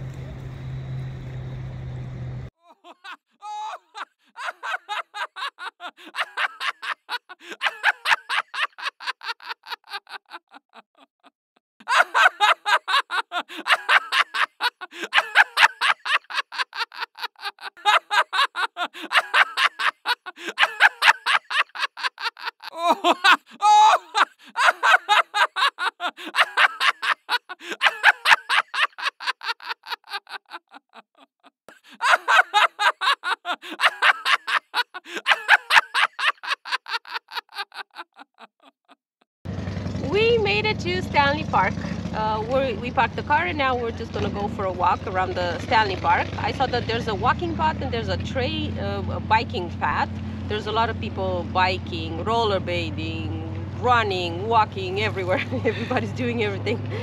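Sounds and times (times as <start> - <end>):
low hum: 0.0 - 2.5
person laughing: 2.6 - 39.0, 55.3 - 56.1.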